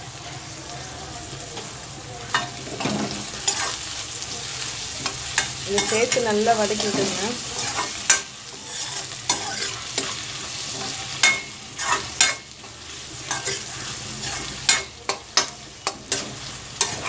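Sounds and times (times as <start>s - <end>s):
frying sizzle: 0.0s - 17.0s
spoon scraping and clinking pan: 5.0s - 12.5s, 13.2s - 17.0s.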